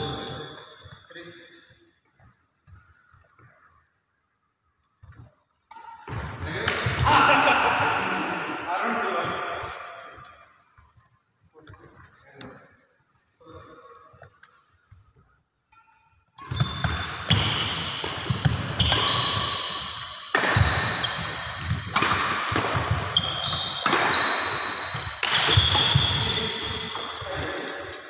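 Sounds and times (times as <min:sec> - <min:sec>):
shoes squeaking on floor: 0:13.4 - 0:22.0, 0:22.8 - 0:27.7
racket striking shuttlecock: 0:15.7 - 0:27.9.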